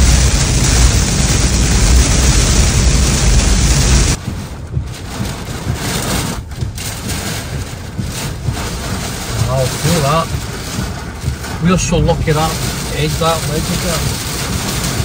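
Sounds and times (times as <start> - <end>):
deep rumble: 0.0 - 15.0
heavy rain on a car: 0.0 - 15.0.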